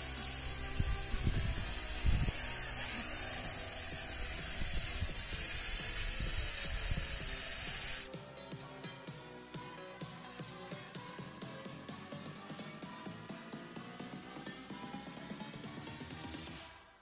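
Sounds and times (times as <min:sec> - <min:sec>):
steady hiss: 0:00.0 - 0:08.1.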